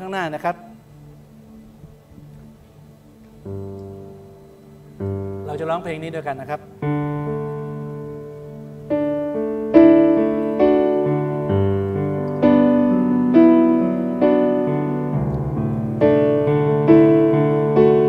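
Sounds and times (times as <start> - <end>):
slow piano chords: 0.0 - 18.0.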